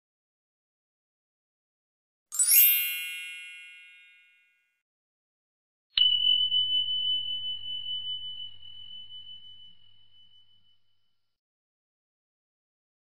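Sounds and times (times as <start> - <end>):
shimmering chime: 2.4 - 4.6, 6.0 - 11.0
high bell ding: 2.4 - 4.7.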